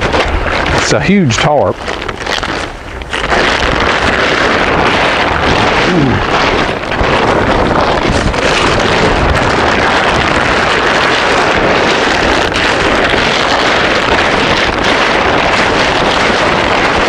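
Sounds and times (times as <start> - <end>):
tarp rustling and crackling: 0.0 - 17.0.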